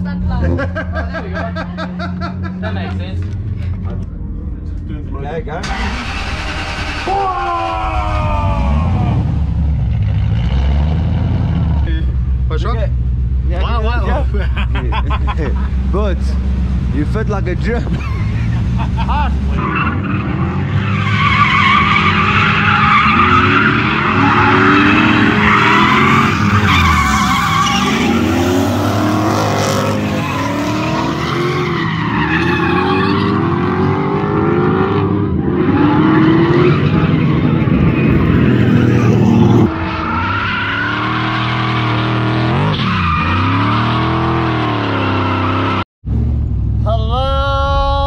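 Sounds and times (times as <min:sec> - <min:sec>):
car engines revving hard: 0:00.0 - 0:04.1, 0:05.6 - 0:46.8
tyres squealing and skidding: 0:05.6 - 0:10.9, 0:18.0 - 0:45.8.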